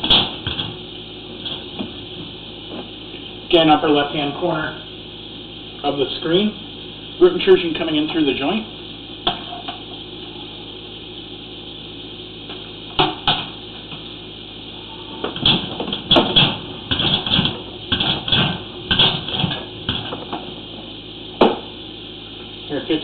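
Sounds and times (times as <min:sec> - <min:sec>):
steady low hiss: 0:00.0 - 0:23.0.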